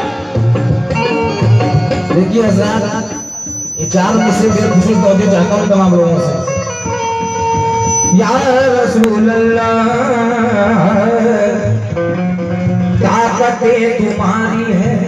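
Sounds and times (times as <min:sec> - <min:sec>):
man singing wavering lines: 0:02.0 - 0:07.0, 0:07.8 - 0:11.9.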